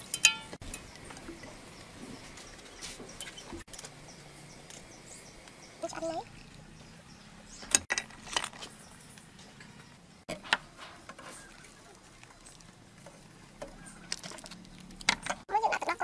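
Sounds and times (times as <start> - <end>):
utensils tapping ceramic bowl: 0.0 - 0.9.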